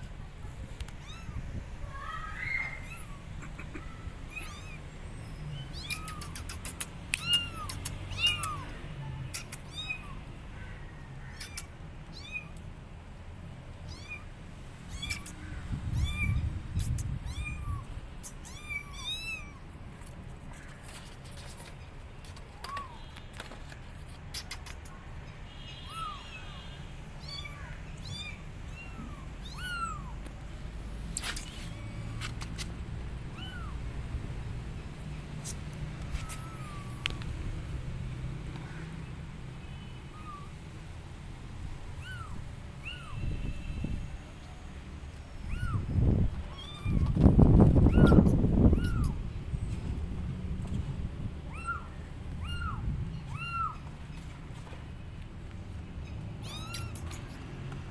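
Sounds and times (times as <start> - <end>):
kittens meowing: 0.8 - 4.8, 5.5 - 10.3, 11.2 - 12.6, 13.9 - 14.3, 14.9 - 19.7, 25.8 - 26.6, 27.2 - 30.2, 33.3 - 33.8, 35.4 - 37.3, 40.1 - 40.6, 42.0 - 43.3, 45.4 - 49.2, 51.4 - 53.9, 56.0 - 57.4.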